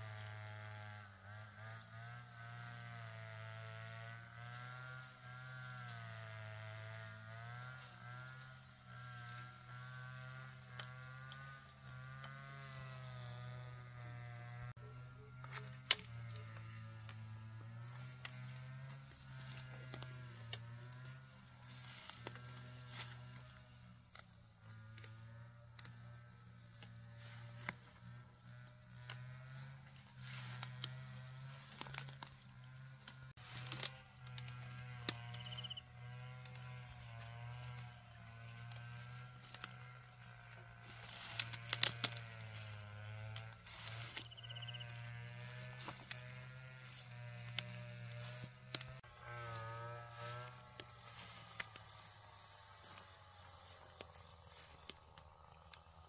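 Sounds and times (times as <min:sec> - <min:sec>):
leaves rustling: 0:17.7 - 0:25.1, 0:27.0 - 0:35.8, 0:36.5 - 0:56.0
stems snapping: 0:17.8 - 0:26.0, 0:26.7 - 0:28.0, 0:29.0 - 0:32.4, 0:33.0 - 0:35.8, 0:36.4 - 0:36.7, 0:38.6 - 0:39.8, 0:40.4 - 0:49.0, 0:50.1 - 0:56.0.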